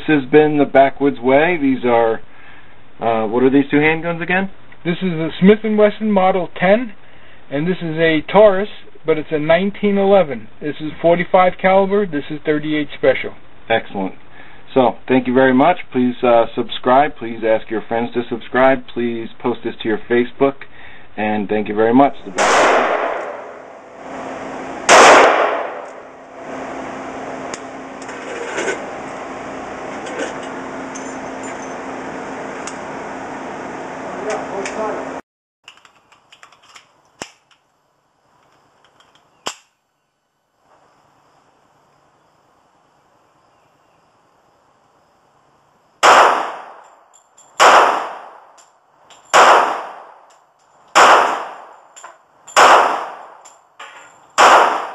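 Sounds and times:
ventilation fan hum: 0.0 - 35.2
handgun shot echoing indoors: 22.4 - 23.8, 24.9 - 26.1, 46.0 - 46.8, 47.6 - 48.4, 49.4 - 50.2, 51.0 - 51.8, 52.6 - 53.4, 54.4 - 54.9.

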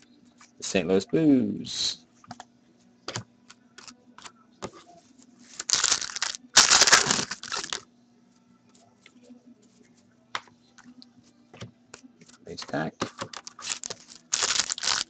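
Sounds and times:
foil wrapper ripping: 5.6 - 7.8, 13.3 - 15.0.

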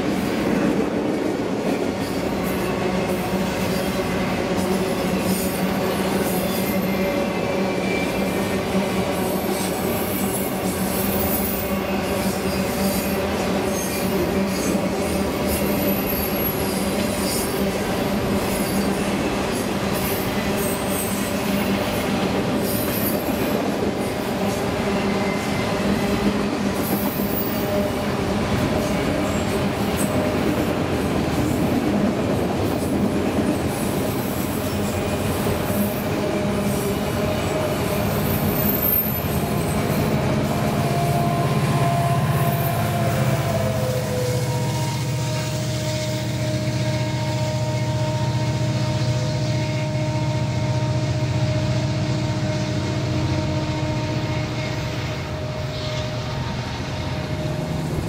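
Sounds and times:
steel wheels rumbling on rail: 0.0 - 58.0
high-pitched wheel squeals: 9.4 - 11.9, 15.6 - 17.6, 38.0 - 51.6.

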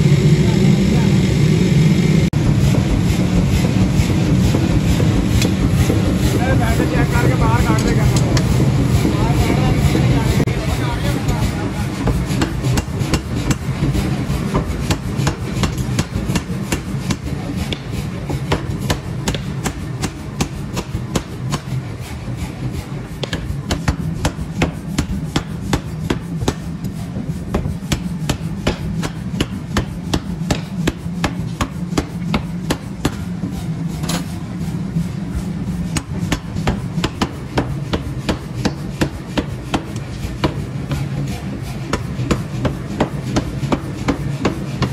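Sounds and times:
low machine hum: 0.0 - 44.9
power hammer striking steel: 2.4 - 9.2, 11.1 - 34.4, 35.9 - 44.9.

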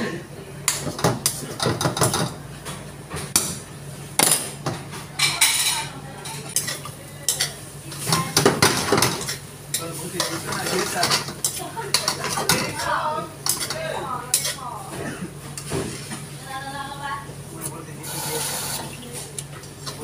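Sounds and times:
food sizzling: 18.0 - 19.4.

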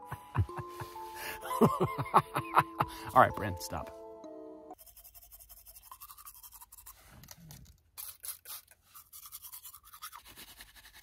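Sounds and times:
toothbrush scrubbing teeth: 4.8 - 11.0.

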